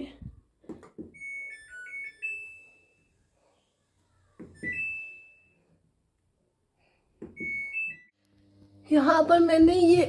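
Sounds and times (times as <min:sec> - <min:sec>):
washing machine control panel beeps: 0:07.3 - 0:08.1.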